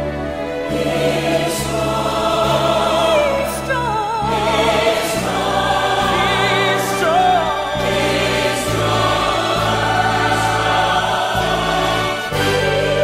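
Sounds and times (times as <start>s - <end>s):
choir singing slow song: 0.0s - 13.0s
sustained instrumental chords: 0.0s - 13.0s.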